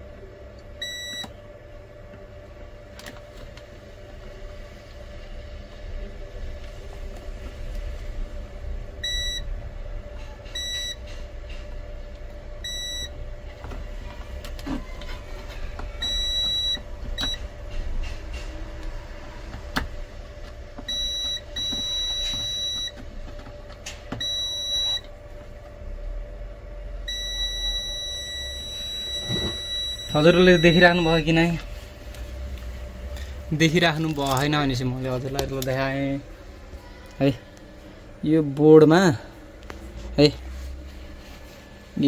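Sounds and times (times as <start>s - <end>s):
low steady hum: 0.0s - 42.0s
multimeter high beeps: 0.8s - 1.3s, 9.0s - 9.5s, 10.6s - 11.0s, 12.6s - 13.1s, 16.0s - 17.4s, 20.9s - 23.0s, 24.2s - 25.1s, 27.1s - 31.6s.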